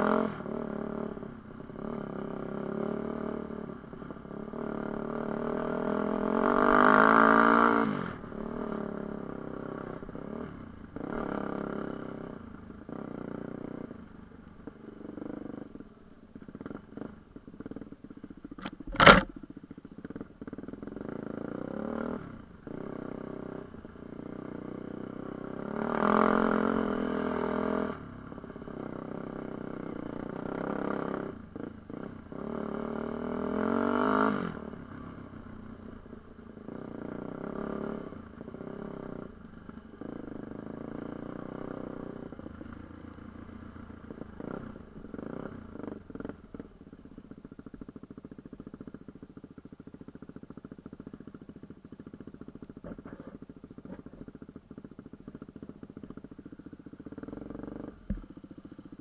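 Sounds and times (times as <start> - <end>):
dirt bike engine revving: 4.3 - 13.8, 20.2 - 28.1.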